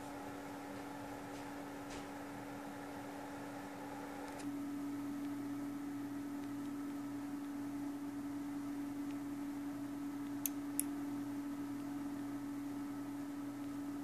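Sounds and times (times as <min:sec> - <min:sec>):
low electrical hum: 0:00.0 - 0:14.0
small sharp clicks: 0:10.2 - 0:10.9.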